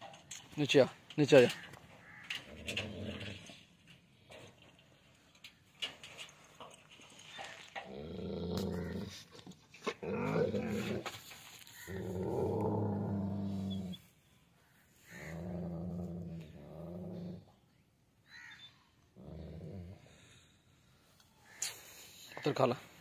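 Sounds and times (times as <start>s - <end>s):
dog growling: 2.5s - 3.6s, 7.8s - 11.2s, 11.8s - 14.0s, 15.1s - 17.5s, 19.2s - 20.3s.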